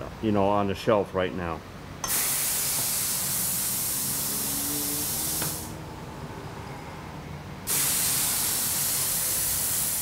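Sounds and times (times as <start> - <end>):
compressed air hissing: 2.0 - 5.8, 7.7 - 10.0.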